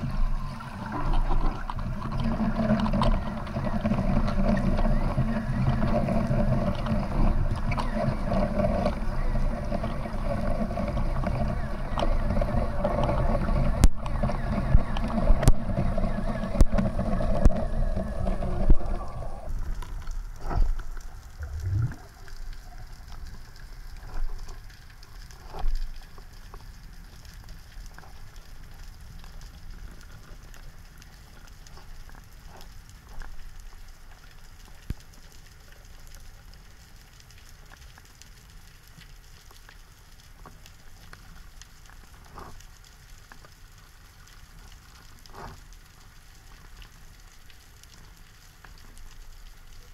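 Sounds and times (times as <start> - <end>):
boat engine droning: 0.0 - 19.7, 21.4 - 22.2
snapping shrimp crackling underwater: 0.1 - 49.9
low swooshing thump: 21.4 - 22.0.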